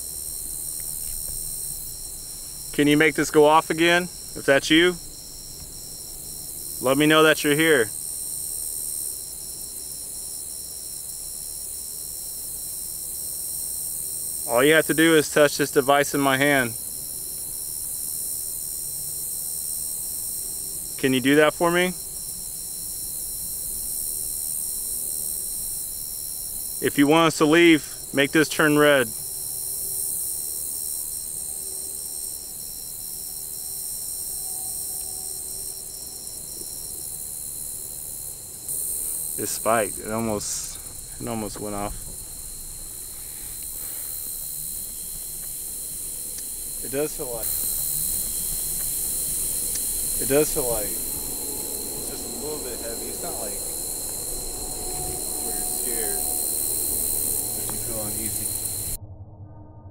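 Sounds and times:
constant hiss: 0.0 - 59.0
crickets trilling: 0.0 - 59.0.

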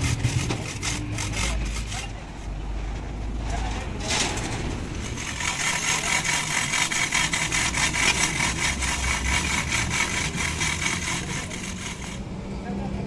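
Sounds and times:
metal caster wheels rolling on dirt: 0.0 - 12.2.

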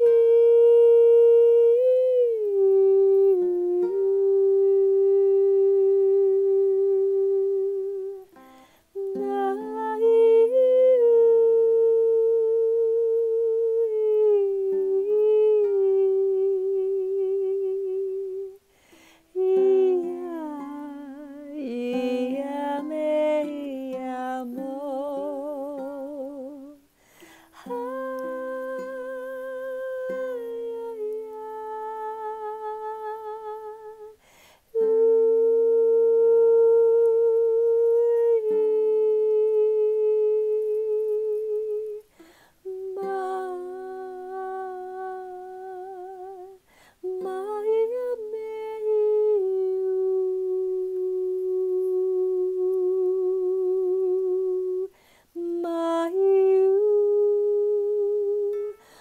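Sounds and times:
ukulele chords: 0.0 - 11.4, 55.5 - 59.0
woman singing sustained notes: 0.0 - 59.0
woman breathing: 8.4 - 9.0, 18.6 - 19.4, 26.9 - 27.6, 34.2 - 34.8, 42.1 - 42.7, 46.6 - 47.0, 54.9 - 55.4, 58.7 - 59.0.

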